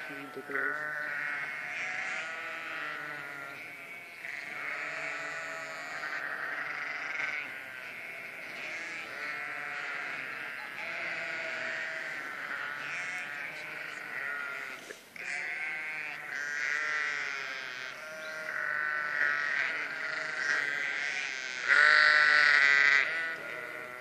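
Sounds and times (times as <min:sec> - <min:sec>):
sheep bleating: 0:00.0 - 0:24.0.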